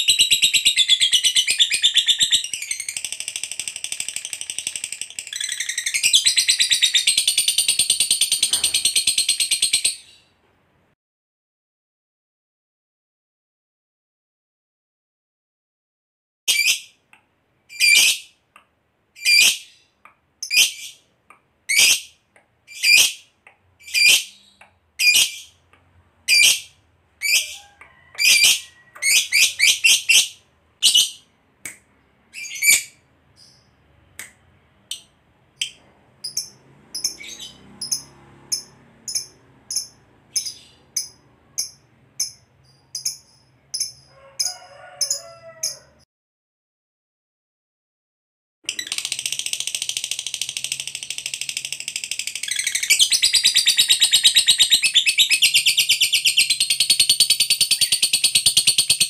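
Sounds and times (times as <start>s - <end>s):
fainter higher chirps: 35.0s - 44.1s.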